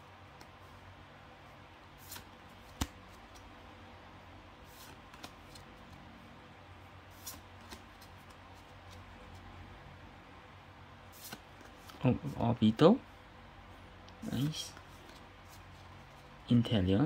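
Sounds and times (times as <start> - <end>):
cards swishing: 1.9 - 3.5, 4.6 - 6.0, 7.1 - 9.5, 11.0 - 12.4.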